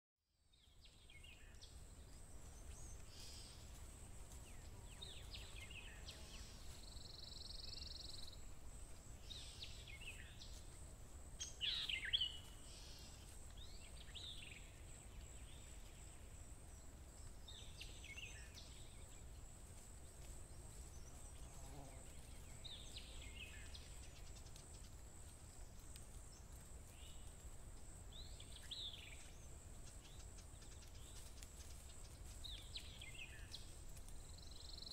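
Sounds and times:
birds chirping: 0.6s - 8.6s, 11.4s - 25.7s.

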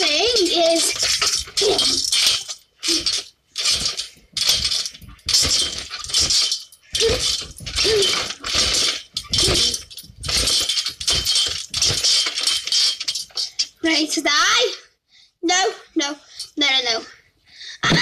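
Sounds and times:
trampoline squeak: 0.0s - 13.1s
trampoline springs jingling and creaking: 0.0s - 14.6s.

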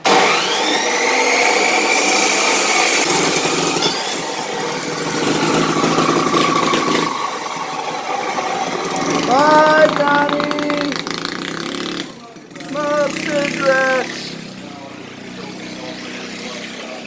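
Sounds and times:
saw grinding through steel: 0.0s - 10.3s
chop saw motor whining: 0.0s - 17.0s.

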